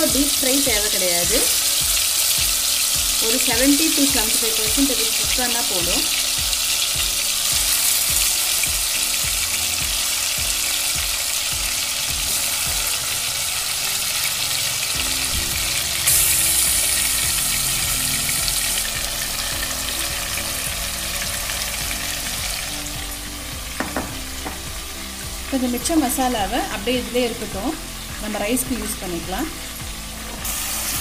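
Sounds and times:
chicken sizzling in hot oil: 0:00.0 - 0:31.0.

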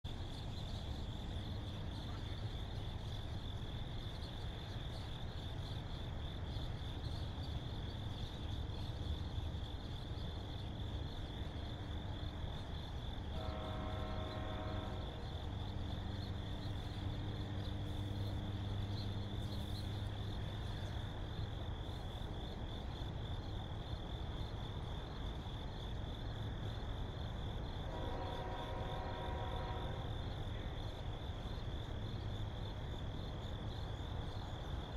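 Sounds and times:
crickets trilling: 0:00.1 - 0:34.9
distant train horn: 0:13.2 - 0:15.7, 0:27.8 - 0:30.8.

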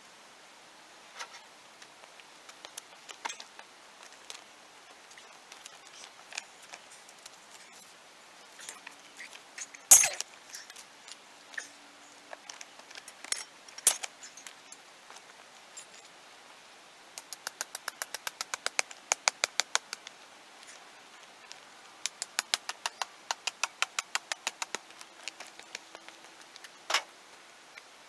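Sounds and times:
bolt cutters cracking through rebar: 0:09.9 - 0:10.8, 0:12.5 - 0:14.1.

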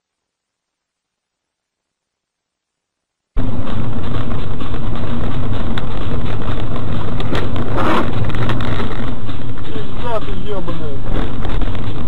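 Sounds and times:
car engine and tyre rumble: 0:03.4 - 0:12.0.

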